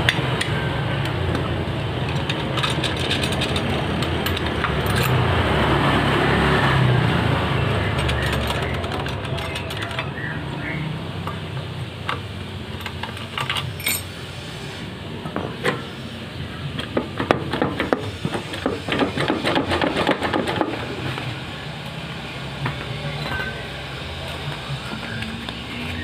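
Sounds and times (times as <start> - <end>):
metal tools and bolts clinking: 2.0 - 5.3, 7.8 - 10.2, 12.1 - 14.2, 23.1 - 23.6.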